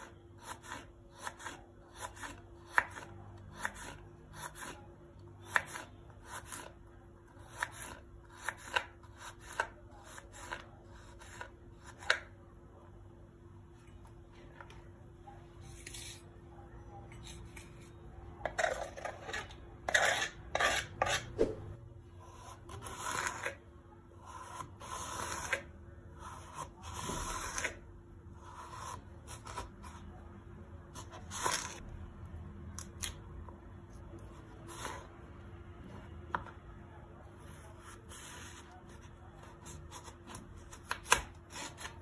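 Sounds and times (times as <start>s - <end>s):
knife slicing on cutting board: 18.6s - 21.7s.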